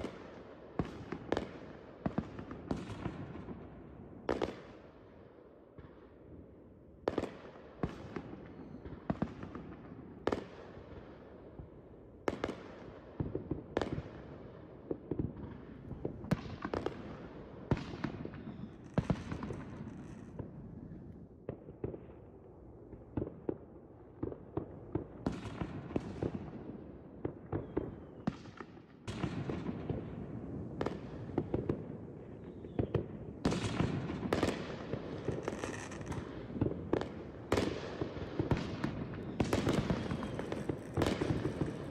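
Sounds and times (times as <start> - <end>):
fireworks bangs with echo: 0.0 - 4.9, 12.2 - 22.3, 24.2 - 41.9
fireworks crackling: 30.9 - 41.9.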